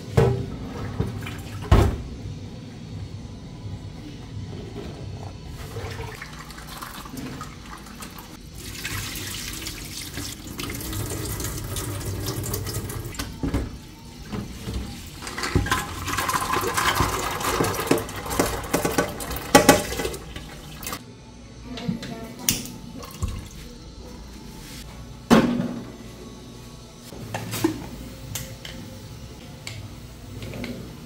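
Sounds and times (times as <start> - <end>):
tap water running into a pot: 5.6 - 13.5, 14.3 - 21.0.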